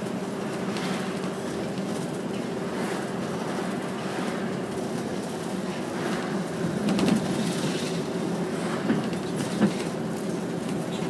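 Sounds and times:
bus engine and road drone: 0.0 - 11.0.

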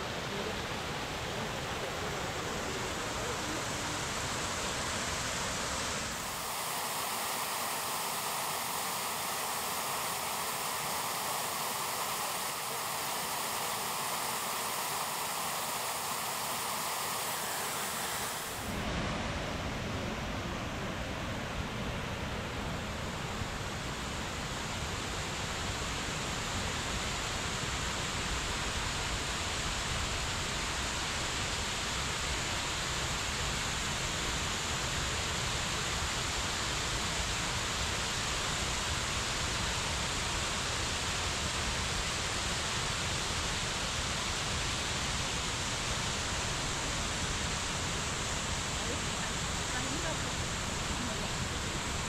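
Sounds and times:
waterfall splashing into pool: 6.0 - 18.8.

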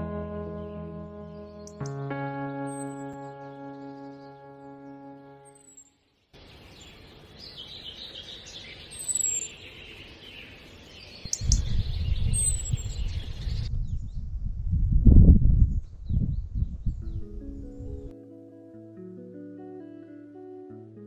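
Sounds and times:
birds chirping: 0.0 - 13.7.

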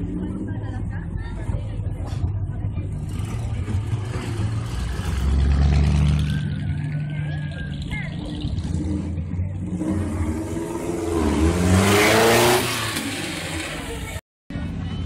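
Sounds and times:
race car engine revving: 2.8 - 14.2.

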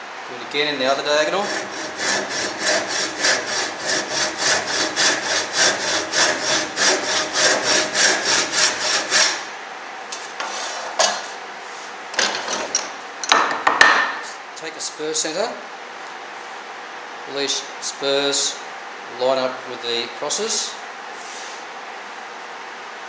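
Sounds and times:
hand saw cutting wood: 1.2 - 9.5.

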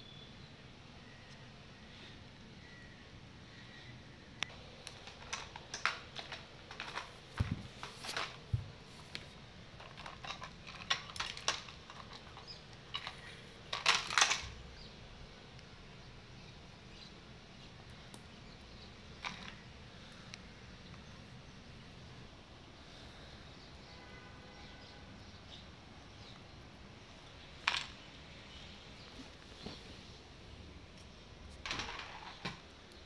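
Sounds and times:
puppy playing with plastic toys: 4.5 - 14.6, 19.1 - 20.1, 27.5 - 28.6, 31.5 - 33.0.

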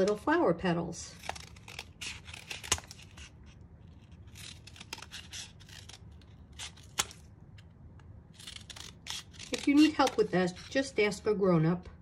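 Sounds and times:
scissors snipping cardboard tube: 1.2 - 3.3, 8.4 - 10.8.

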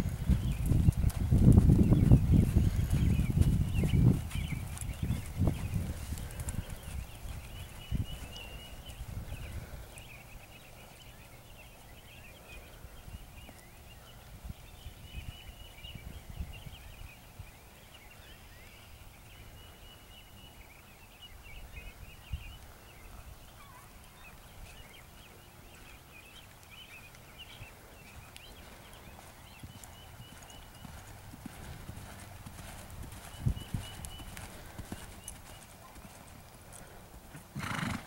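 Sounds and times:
horse hoofbeats on dirt: 0.0 - 10.0, 25.8 - 38.0.

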